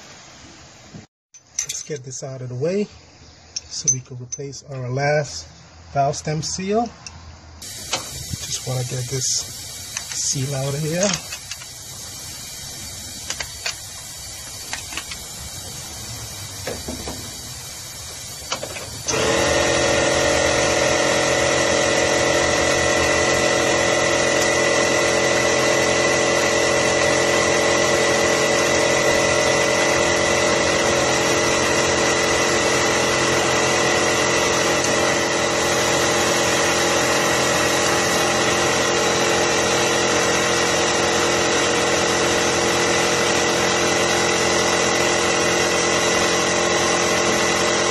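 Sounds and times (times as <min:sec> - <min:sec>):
machine humming and whining: 0:14.6 - 0:47.9.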